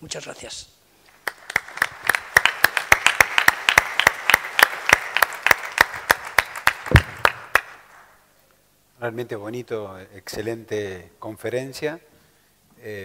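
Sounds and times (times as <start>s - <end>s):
audience applauding: 1.1s - 8.0s
individual sharp claps: 1.1s - 8.1s.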